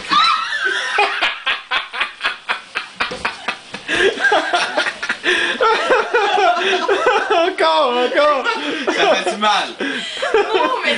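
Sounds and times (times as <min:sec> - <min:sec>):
people laughing hard: 0:00.2 - 0:10.9.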